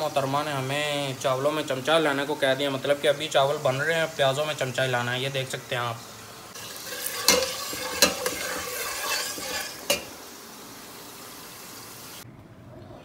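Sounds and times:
onions sizzling in oil: 0.0s - 12.2s
metal spoon clinking on pot: 6.6s - 10.1s.

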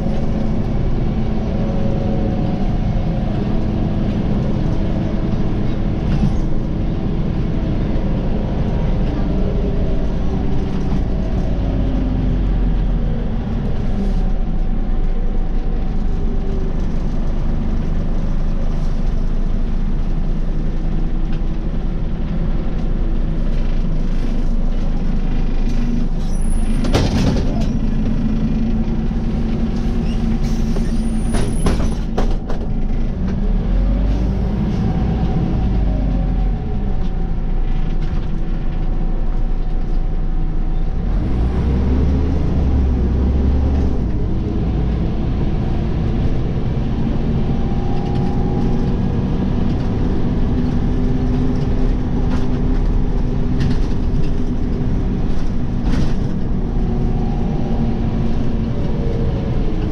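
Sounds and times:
bus engine humming: 0.0s - 59.9s
bus body knocks and rattles: 26.6s - 28.8s, 29.4s - 33.5s, 48.1s - 56.7s.

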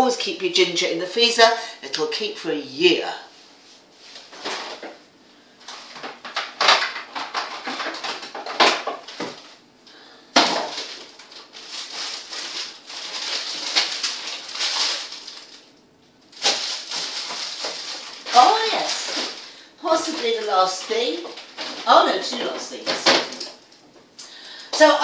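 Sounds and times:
rustling and scraping: 3.3s - 5.0s, 10.4s - 15.7s, 16.3s - 23.6s
frozen packets knocking: 6.0s - 9.5s, 10.3s - 15.7s, 16.3s - 23.6s.

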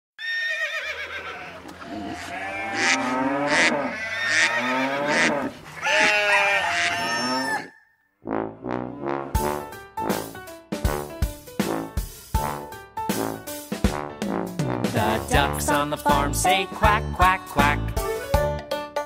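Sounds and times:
livestock bleating: 0.2s - 7.7s.

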